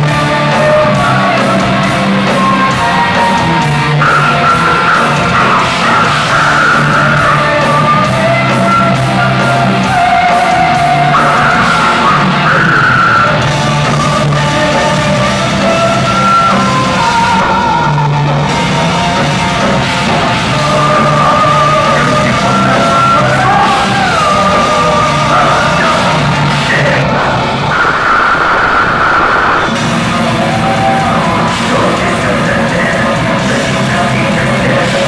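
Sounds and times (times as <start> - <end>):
heavy metal band playing live: 0.0 - 35.0
melodic lead guitar line: 0.0 - 35.0.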